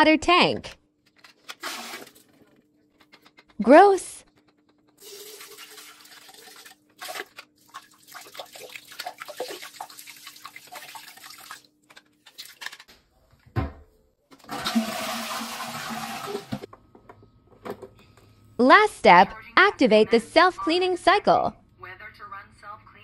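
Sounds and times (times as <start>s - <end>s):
toilet flushing: 1.6s - 2.3s, 5.0s - 11.7s, 14.4s - 16.7s
plastic parts clicking and clattering: 2.4s - 3.6s, 11.9s - 13.0s
water splashing: 5.0s - 11.7s.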